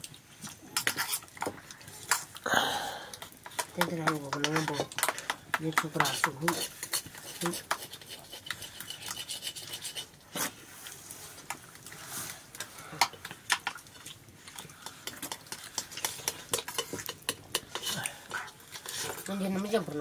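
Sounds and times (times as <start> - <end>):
metal utensil scraping cooking pot: 0.7 - 2.3, 3.2 - 10.6, 14.8 - 20.0.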